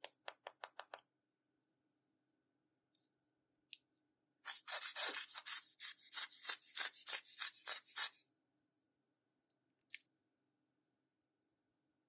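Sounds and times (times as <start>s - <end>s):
quick scraping strokes: 4.5s - 8.2s.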